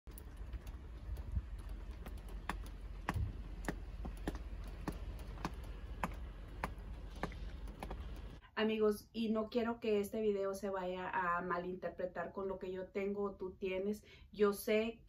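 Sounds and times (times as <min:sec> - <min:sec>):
sharp irregular clicks: 0:00.1 - 0:08.4
low steady rumble: 0:00.1 - 0:08.5.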